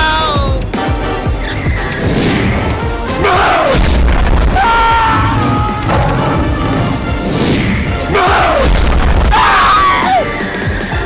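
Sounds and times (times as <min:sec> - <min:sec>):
background music: 0:00.0 - 0:11.0
deep low boom: 0:03.8 - 0:08.0
falling swoop: 0:03.8 - 0:09.0.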